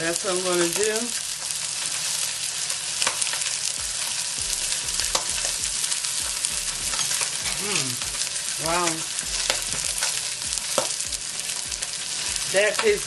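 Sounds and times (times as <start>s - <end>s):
fish sizzling in a pan: 0.0s - 13.0s.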